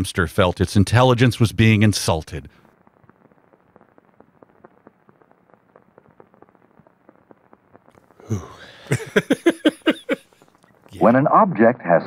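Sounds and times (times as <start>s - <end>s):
low hiss: 0.0s - 12.0s
film crackle and pops: 0.7s - 9.3s, 10.2s - 11.2s.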